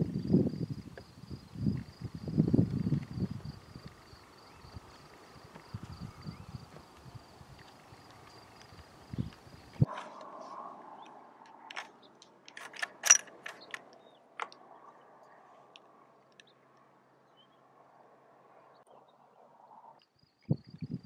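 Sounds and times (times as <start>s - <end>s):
rifle bolt metallic clicks: 11.5s - 14.6s.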